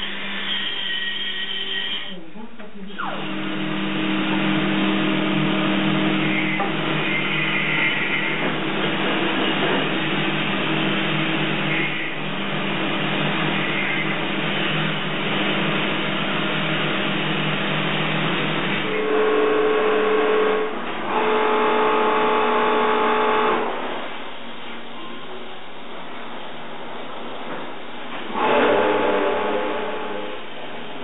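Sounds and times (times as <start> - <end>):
machine noise with low hum: 0.0 - 31.0
high steady buzz: 2.9 - 24.1.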